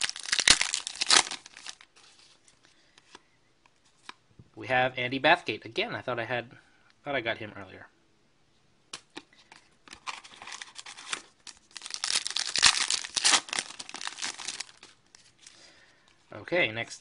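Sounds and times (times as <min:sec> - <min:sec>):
foil wrapper tearing and crinkling: 0:00.0 - 0:01.9, 0:09.9 - 0:15.0.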